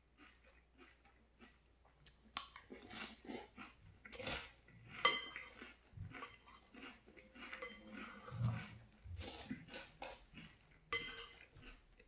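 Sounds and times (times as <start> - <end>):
crunchy chewing: 0.0 - 12.0
metal spoon clinking bowl: 5.1 - 5.6, 7.5 - 8.5, 10.9 - 11.6.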